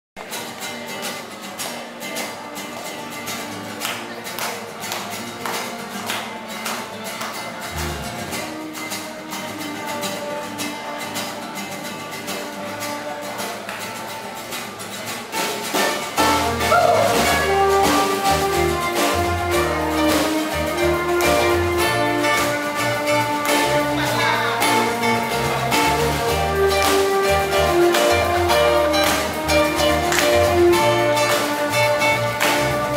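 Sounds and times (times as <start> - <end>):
electric guitar: 0.2 - 32.9
strummed acoustic guitars: 0.2 - 32.9
keyboard: 5.8 - 10.4, 16.0 - 32.9
deep bass notes: 7.7 - 8.6.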